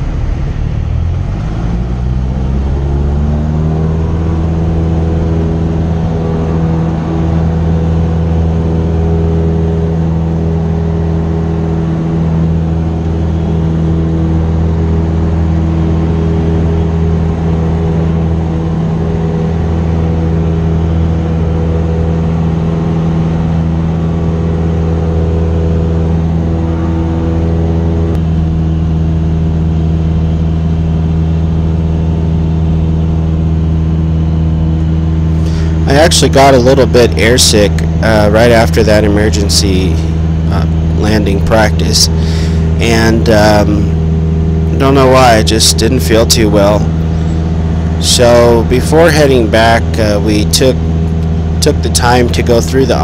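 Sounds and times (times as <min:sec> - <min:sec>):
propeller plane engine droning: 0:00.0 - 0:53.0.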